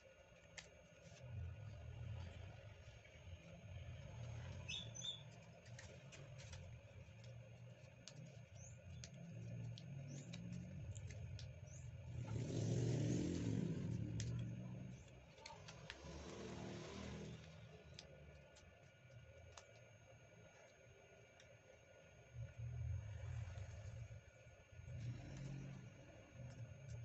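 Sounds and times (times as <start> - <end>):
paper crinkling while folded: 0.1 - 12.4, 13.3 - 20.8.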